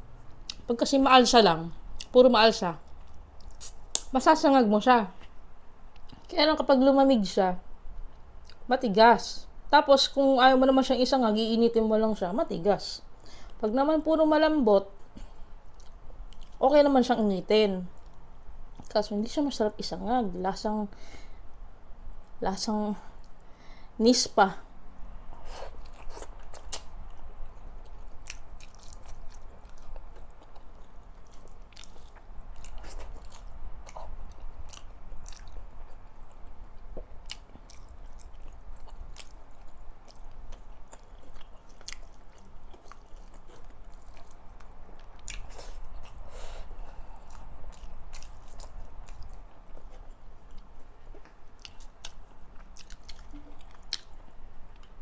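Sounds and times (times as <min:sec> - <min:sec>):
close chewing with mouth clicks: 0:02.8 - 0:04.1, 0:15.7 - 0:16.6, 0:25.3 - 0:55.0.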